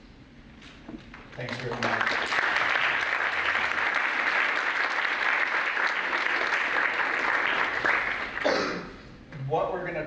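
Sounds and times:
audience applauding: 1.2 - 8.5.

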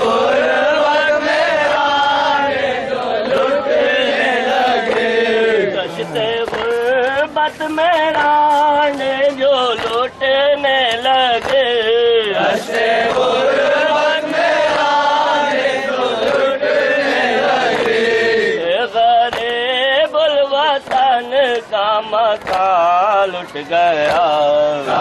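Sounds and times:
men chanting a lament: 0.0 - 25.0
hands slapping chests: 3.2 - 3.6, 4.7 - 5.2, 6.0 - 13.5, 16.2 - 16.5, 17.6 - 18.1, 19.0 - 19.7, 20.7 - 23.2.

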